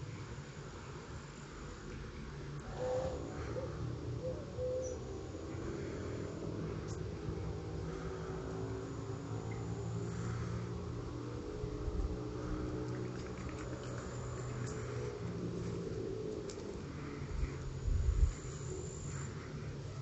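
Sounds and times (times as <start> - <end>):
low mechanical hum: 0.0 - 20.0
faint bird calls: 2.6 - 7.1.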